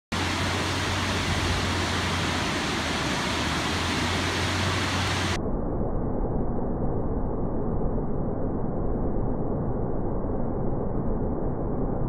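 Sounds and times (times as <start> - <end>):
waterfall rushing into pool: 0.1 - 5.4.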